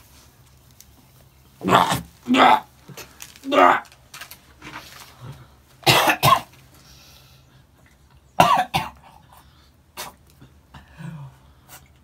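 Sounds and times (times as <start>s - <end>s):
man coughing hard: 5.8s - 6.5s, 8.4s - 9.0s.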